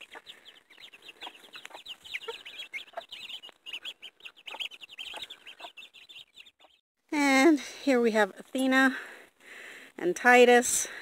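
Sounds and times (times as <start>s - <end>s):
baby chicks peeping: 0.0s - 6.8s
chickens clucking: 0.0s - 6.8s.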